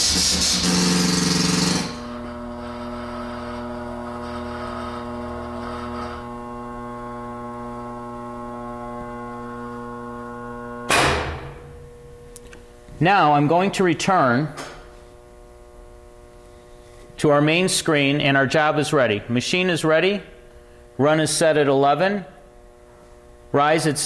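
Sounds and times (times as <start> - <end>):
sudden loud hiss: 0.0 - 1.8
loud buzz and hiss: 0.0 - 12.2
steady mechanical hum: 0.0 - 24.0.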